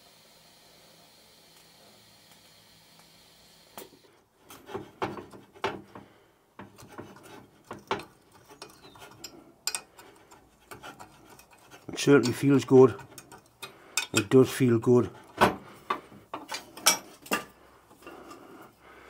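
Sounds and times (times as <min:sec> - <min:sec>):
stud creaking and scraping: 0:04.4 - 0:14.4
grating rubs: 0:06.6 - 0:13.7.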